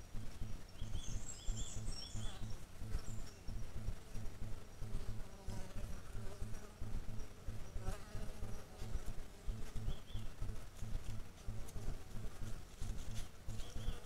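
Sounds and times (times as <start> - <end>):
insect buzzing: 0.0 - 14.0
low rumbling pulse: 0.0 - 14.0.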